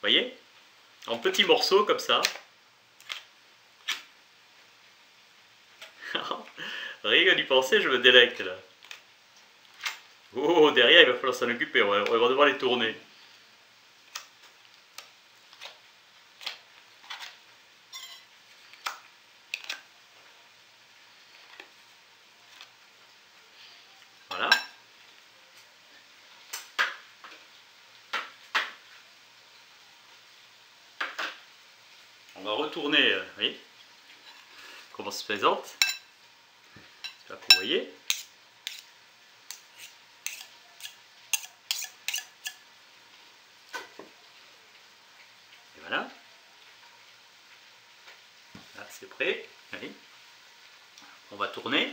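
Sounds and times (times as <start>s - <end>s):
cutlery clinking against glass bowl: 17.9s - 18.3s, 24.4s - 24.8s, 35.8s - 36.1s, 37.0s - 38.8s, 40.3s - 42.6s
knife scraping and tapping: 37.0s - 38.9s, 39.5s - 42.6s.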